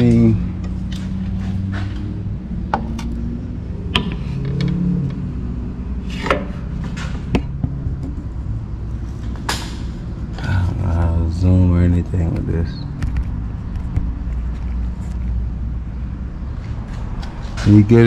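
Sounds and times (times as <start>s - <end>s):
steady low hum: 0.0s - 18.0s
fan assembly clicking and knocking: 3.9s - 5.2s, 6.1s - 8.6s.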